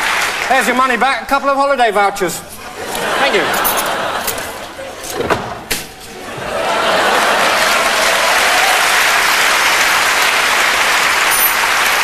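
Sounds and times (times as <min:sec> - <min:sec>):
audience applauding: 0:00.0 - 0:01.0, 0:06.2 - 0:12.0.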